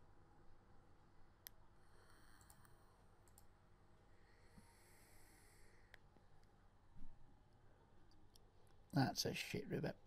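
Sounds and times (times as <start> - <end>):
computer mouse clicks: 1.4 - 3.5.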